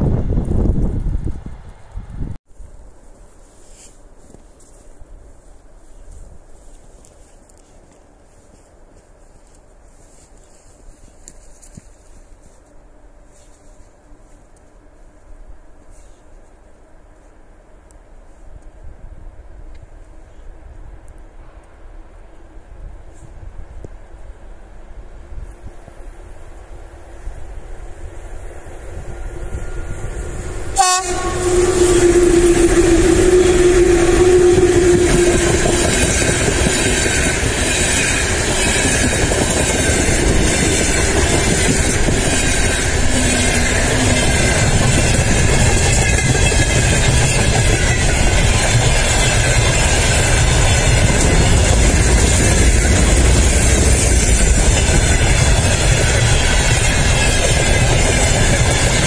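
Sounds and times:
freight wagons rumbling on rails: 24.9s - 59.0s
locomotive horn: 29.2s - 37.4s, 41.8s - 46.6s.

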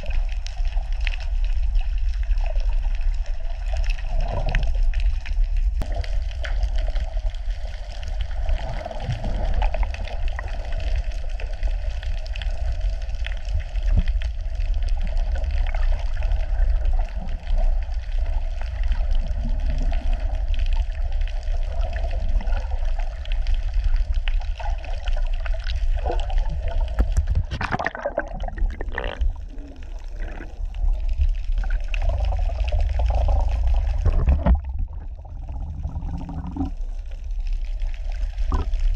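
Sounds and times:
sloshing and trickling water: 0.0s - 38.9s
underwater rumble: 0.0s - 38.9s
water splash: 26.5s - 35.4s.

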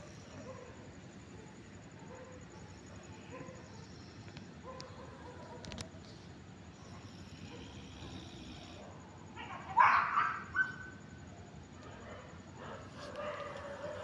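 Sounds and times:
dog barking: 0.0s - 3.9s, 4.6s - 5.8s, 6.8s - 11.0s, 11.8s - 14.0s
faint background noise: 0.0s - 14.0s.

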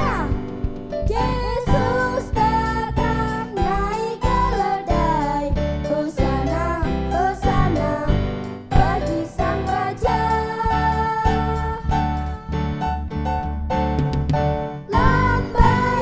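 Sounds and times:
instrumental backing music with beat: 0.0s - 16.0s
children singing into microphones: 1.1s - 5.5s, 8.8s - 12.0s, 14.9s - 16.0s.

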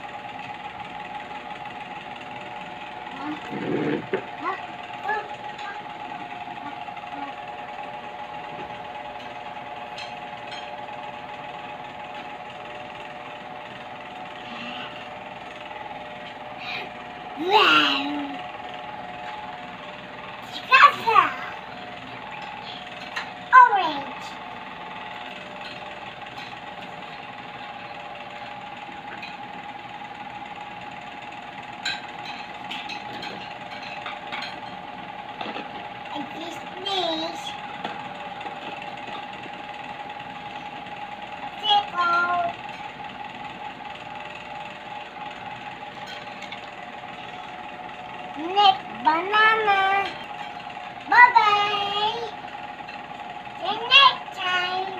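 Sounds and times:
mechanical hum with buzzing: 0.0s - 54.9s.

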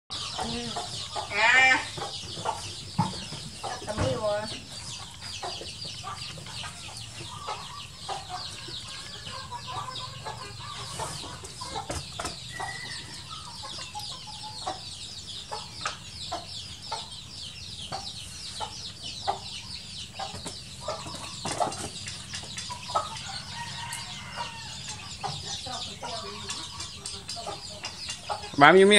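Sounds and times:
chickens clucking: 0.1s - 28.9s.

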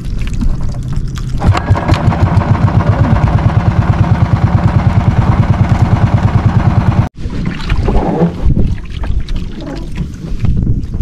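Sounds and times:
water noise: 0.0s - 11.0s
boat engine chugging: 1.4s - 7.1s
wind noise: 7.2s - 11.0s.

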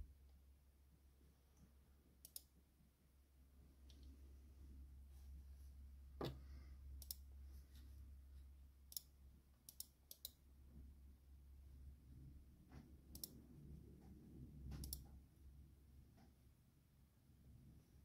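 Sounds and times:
computer mouse clicking: 2.2s - 2.5s, 7.0s - 7.3s, 8.9s - 10.4s, 12.7s - 13.4s, 14.1s - 15.2s.

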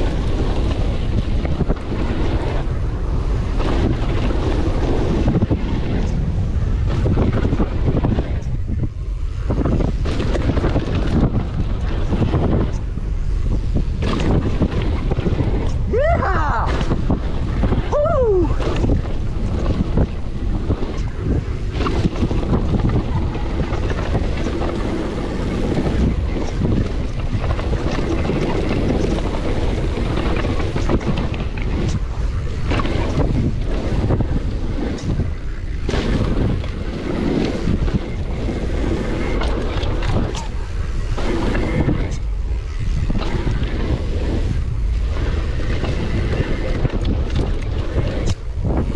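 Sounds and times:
wind rushing over microphone: 0.0s - 48.9s
bike knocks and rattles: 9.4s - 12.9s, 13.8s - 15.8s, 18.5s - 48.9s.

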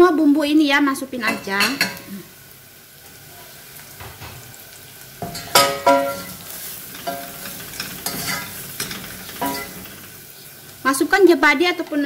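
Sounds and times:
onions sizzling in hot oil: 0.0s - 12.0s
spoon clinking against pan: 5.2s - 6.4s, 8.0s - 9.8s.

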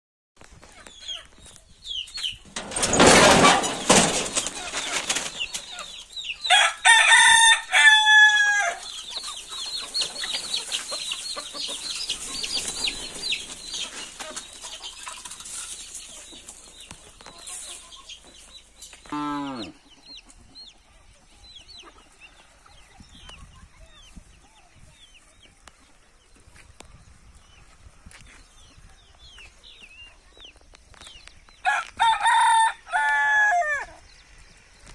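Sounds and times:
hens peeping and clucking: 0.4s - 34.9s
wings flapping: 2.9s - 5.8s
rooster crowing: 6.5s - 8.9s, 31.6s - 33.9s.

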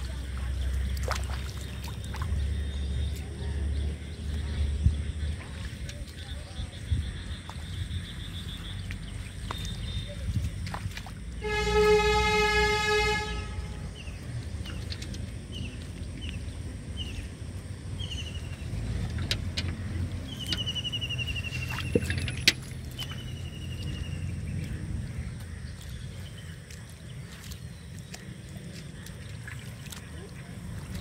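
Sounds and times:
vehicle horn blaring: 11.4s - 14.0s.

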